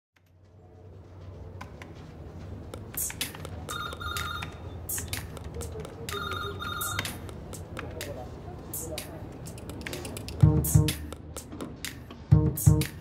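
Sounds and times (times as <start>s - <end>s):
scattered clicks: 2.7s - 8.2s
telephone ringing: 3.7s - 4.8s, 6.1s - 7.2s.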